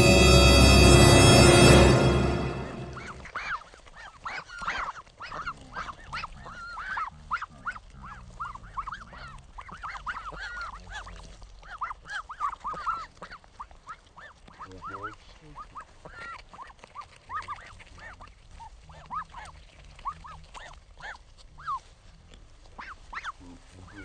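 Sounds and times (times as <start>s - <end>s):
dramatic music: 0.0s - 3.2s
ducklings peeping: 3.4s - 21.9s, 22.6s - 24.0s.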